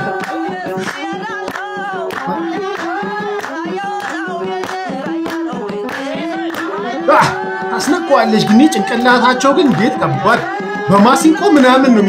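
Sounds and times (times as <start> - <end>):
steady hand clapping: 0.0 - 7.8
group singing a chant: 0.0 - 12.0.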